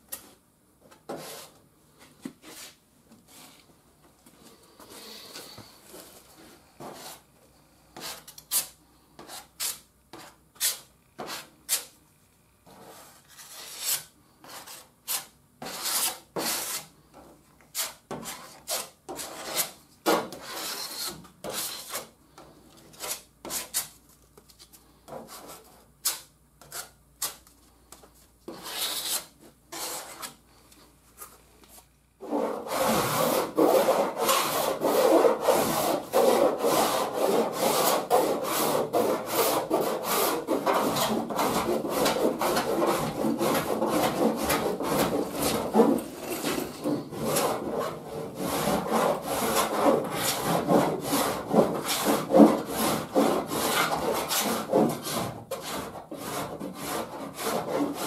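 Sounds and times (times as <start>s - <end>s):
spreader scraping filler on metal: 32.2s - 56.8s
hand file rasping: 32.2s - 58.0s.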